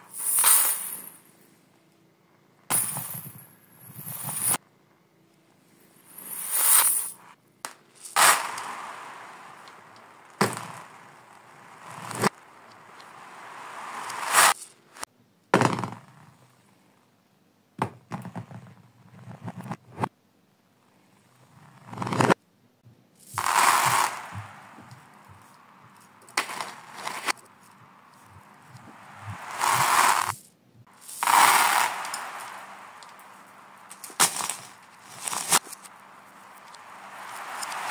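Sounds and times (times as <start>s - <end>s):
reversed balls and beads clattering: 0.0s - 1.3s, 2.7s - 4.6s, 5.9s - 16.5s, 21.5s - 22.4s, 23.2s - 37.9s.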